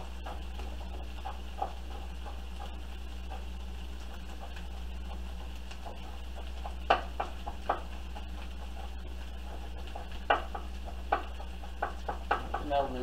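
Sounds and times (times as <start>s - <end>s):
steady low hum: 0.0s - 13.0s
knife tapping on cutting board: 10.0s - 12.8s.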